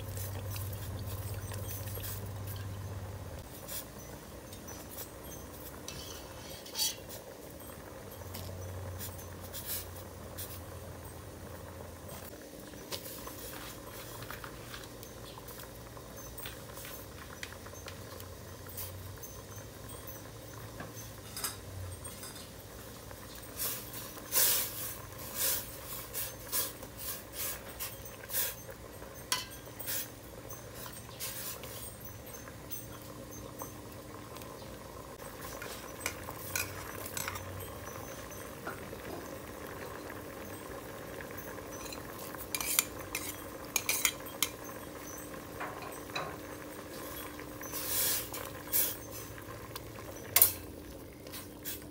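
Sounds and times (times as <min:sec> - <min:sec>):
ladle clinking against pot: 0:29.2 - 0:31.8, 0:35.5 - 0:38.0, 0:41.7 - 0:47.3.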